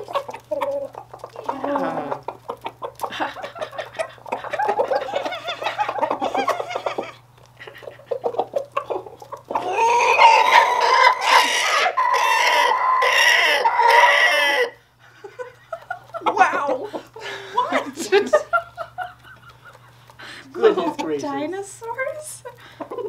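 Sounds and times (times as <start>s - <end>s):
roosters clucking softly: 0.0s - 23.0s
rooster alarm call: 9.6s - 14.8s.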